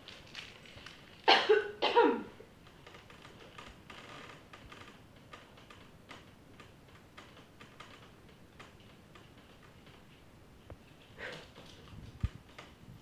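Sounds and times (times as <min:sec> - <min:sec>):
dog coughing: 0:01.3 - 0:02.4.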